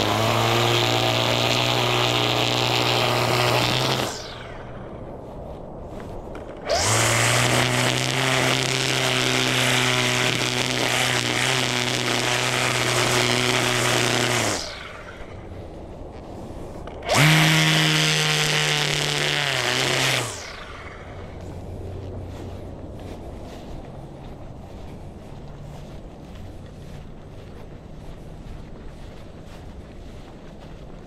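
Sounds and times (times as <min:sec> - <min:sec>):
string trimmer whining: 0:00.0 - 0:04.9, 0:06.3 - 0:23.7.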